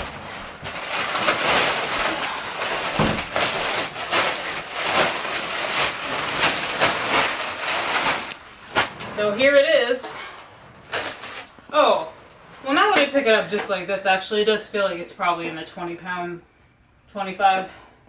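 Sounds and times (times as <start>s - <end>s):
plastic wrapping crinkling: 0.0s - 9.5s, 10.8s - 11.6s.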